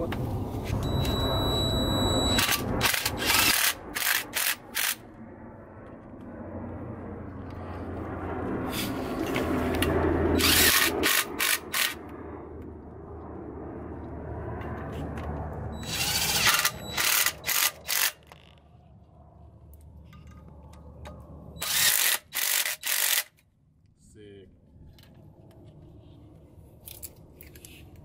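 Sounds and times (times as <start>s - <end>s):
cordless drill bursts: 15.8s - 17.6s, 21.6s - 23.3s.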